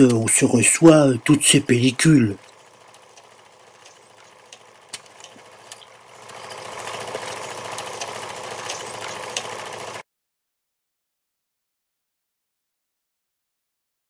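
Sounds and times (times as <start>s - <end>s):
fast mechanical rattle: 0.0s - 10.0s.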